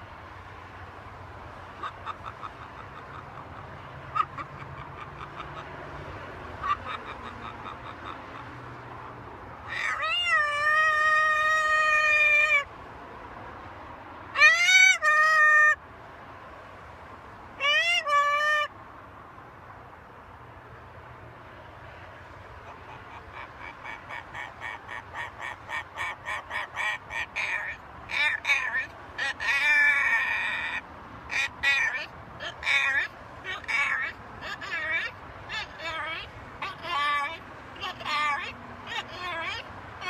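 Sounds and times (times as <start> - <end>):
macaw calling: 1.8 - 5.7, 6.6 - 8.6, 9.7 - 12.7, 22.6 - 39.7.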